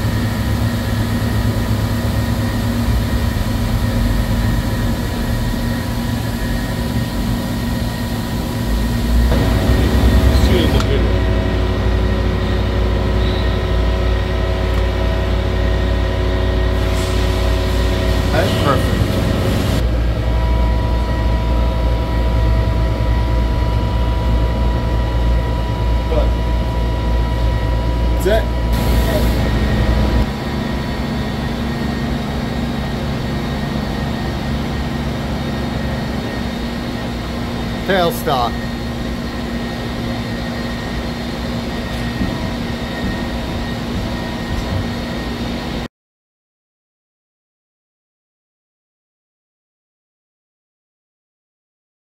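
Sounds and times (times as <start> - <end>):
machine-shop machinery drone: 0.0 - 45.9
thin steady whine: 0.0 - 45.9.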